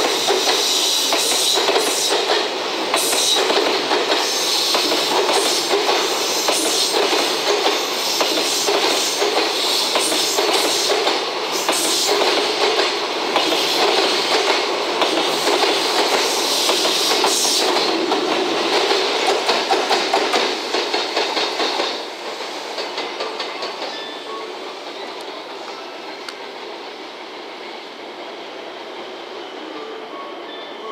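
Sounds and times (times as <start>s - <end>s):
freight train wheels clattering: 0.0s - 25.7s
electric locomotive passing: 0.0s - 30.9s.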